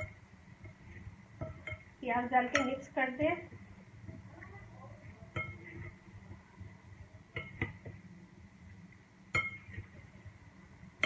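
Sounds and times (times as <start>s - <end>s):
glass bowl clinking: 2.5s - 2.9s, 5.3s - 5.9s, 9.3s - 9.9s.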